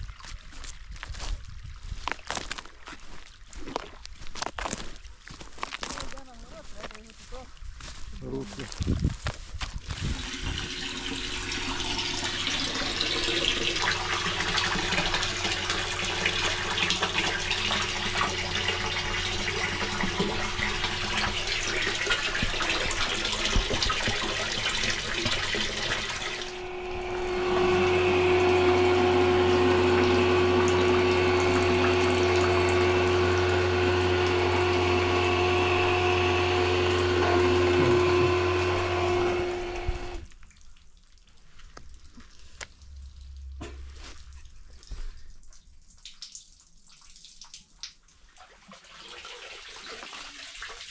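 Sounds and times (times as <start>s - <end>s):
pump motor hum: 9.6s - 40.4s
rushing water: 9.9s - 40.4s.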